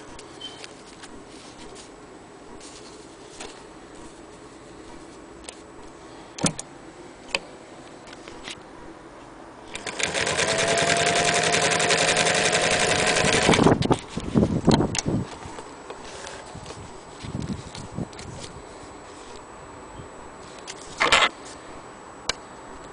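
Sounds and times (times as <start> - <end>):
sewing machine running: 9.7 - 13.8.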